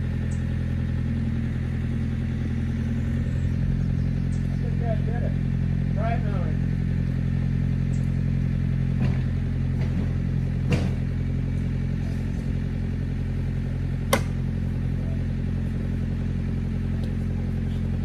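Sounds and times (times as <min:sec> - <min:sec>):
low machine hum: 0:00.0 - 0:18.0
sharp clicks and knocks: 0:14.1 - 0:14.4.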